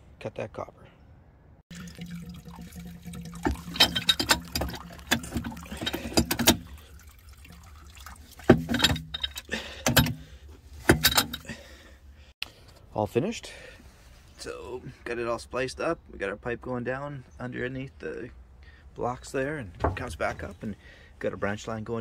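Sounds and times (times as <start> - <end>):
muddy water splashing: 1.7 - 10.3
wrench clanking on metal: 3.5 - 6.7, 8.6 - 10.2, 10.9 - 11.5.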